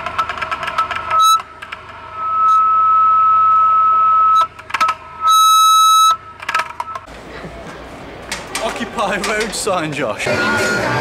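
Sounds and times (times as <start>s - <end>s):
megaphone high-pitched tone: 2.1s - 4.5s
megaphone short blips: 2.2s - 7.1s.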